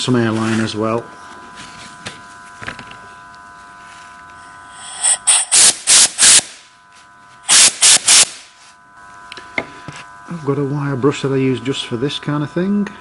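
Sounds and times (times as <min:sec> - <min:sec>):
air blow gun hissing blasts: 0:04.6 - 0:06.7, 0:07.4 - 0:08.5.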